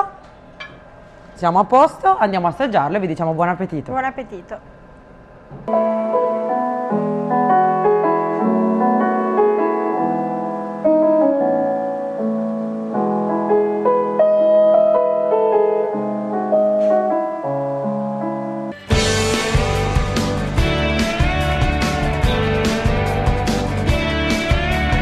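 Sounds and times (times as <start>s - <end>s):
piano music: 5.7s - 25.0s.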